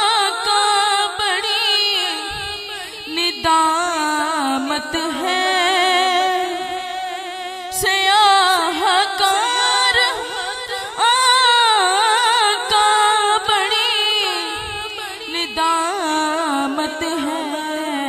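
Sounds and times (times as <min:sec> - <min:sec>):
boy singing unaccompanied: 0:00.0 - 0:18.0
singer breathing: 0:02.3 - 0:03.1.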